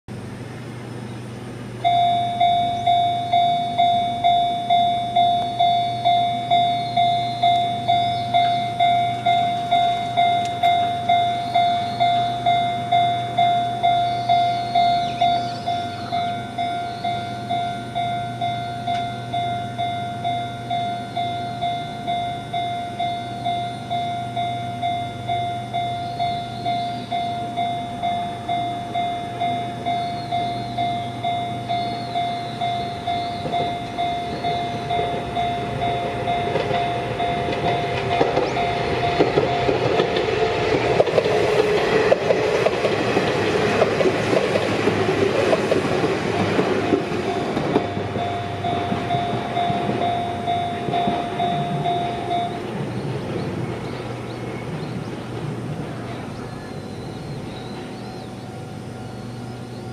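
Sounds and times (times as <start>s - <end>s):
electric train passing: 0.1s - 59.9s
level-crossing warning bell ringing: 1.8s - 59.9s
train wheels clattering over rails: 29.9s - 58.3s.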